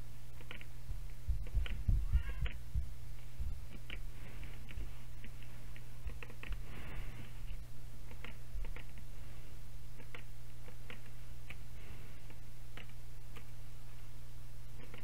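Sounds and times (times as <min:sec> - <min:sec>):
low hum: 0:00.0 - 0:15.0
mouse and keyboard clicks: 0:00.4 - 0:00.7, 0:03.7 - 0:06.6, 0:07.5 - 0:09.1, 0:10.0 - 0:13.6, 0:14.7 - 0:15.0.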